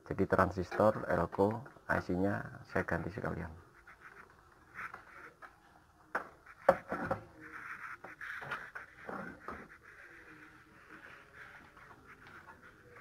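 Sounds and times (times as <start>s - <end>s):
circuit board knocking on wooden bench: 6.1s - 7.3s.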